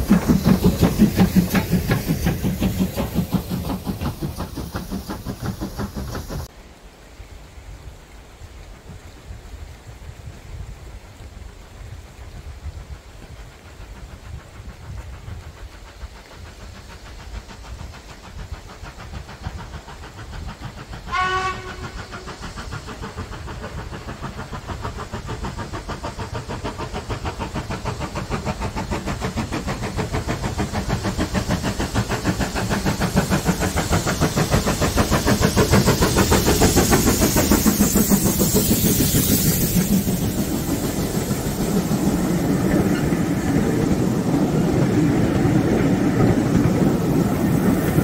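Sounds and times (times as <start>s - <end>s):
steam locomotive exhaust beats: 0.0s - 6.6s, 7.4s - 48.0s
steam locomotive whistle: 21.1s - 22.4s.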